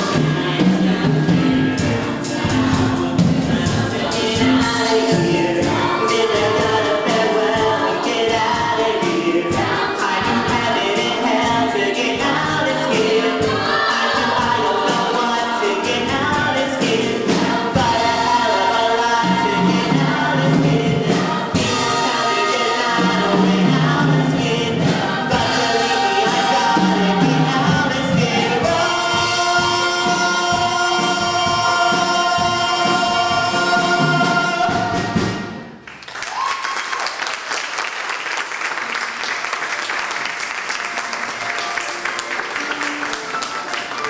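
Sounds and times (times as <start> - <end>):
audience applause: 35.8 - 44.0.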